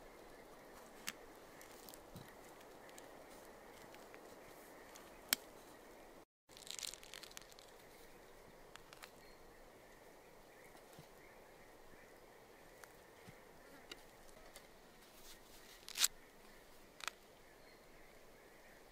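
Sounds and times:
peach tearing apart: 6.5s - 7.7s.

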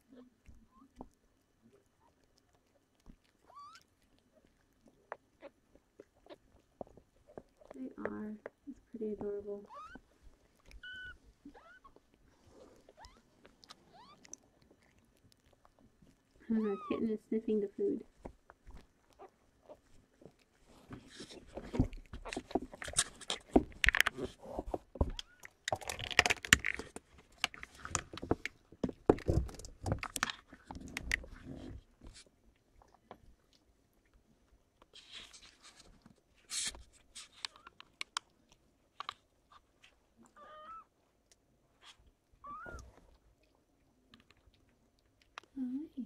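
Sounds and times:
close rustling and scraping: 2.2s - 25.1s, 25.9s - 33.4s, 34.8s - 40.4s
kittens mewing: 9.6s - 10.0s, 10.7s - 12.0s, 40.4s - 40.9s.

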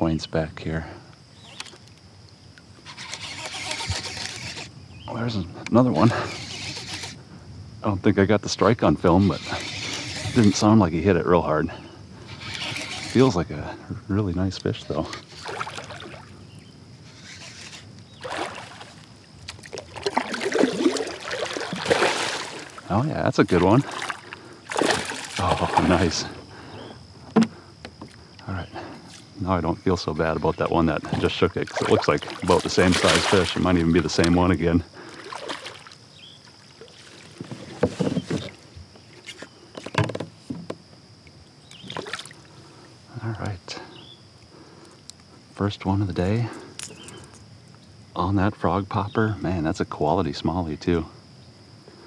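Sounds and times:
water lapping against hull: 9.0s - 10.7s, 11.7s - 13.8s, 14.7s - 40.6s, 41.2s - 43.0s
fish thrashing and splashing: 15.3s - 16.3s, 17.2s - 22.9s, 23.6s - 26.2s, 30.6s - 34.4s, 35.0s - 38.6s, 41.9s - 42.5s
knocks on kayak: 27.3s - 28.1s, 39.8s - 40.8s.

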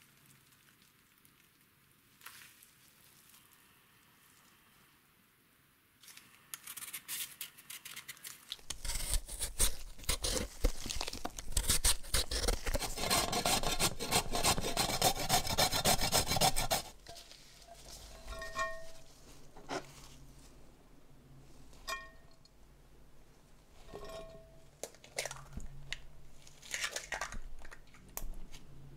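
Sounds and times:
grating on metal grater: 8.7s - 17.0s.

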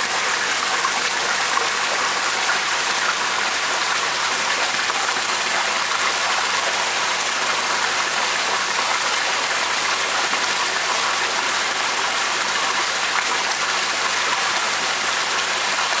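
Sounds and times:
water rushing in a tank: 0.0s - 16.0s.

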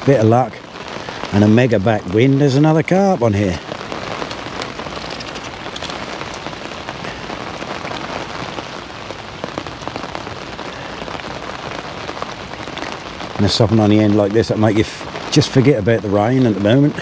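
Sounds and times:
rain on fabric umbrella: 0.0s - 17.0s.

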